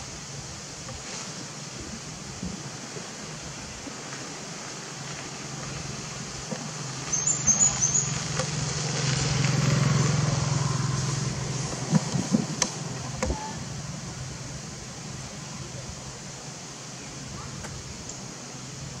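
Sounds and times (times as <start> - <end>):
vehicle engine passing by: 5.3 - 14.4.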